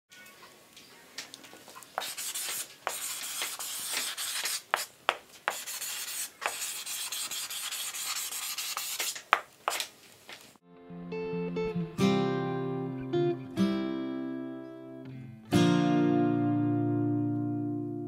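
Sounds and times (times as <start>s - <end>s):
dry rubbing and scraping: 2.0s - 9.9s
acoustic guitar notes: 10.7s - 18.0s.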